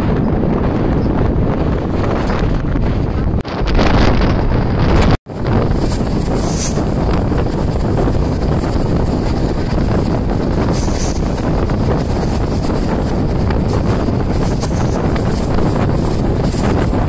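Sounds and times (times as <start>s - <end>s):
wind buffeting microphone: 0.0s - 17.0s
train running rumble: 4.2s - 17.0s.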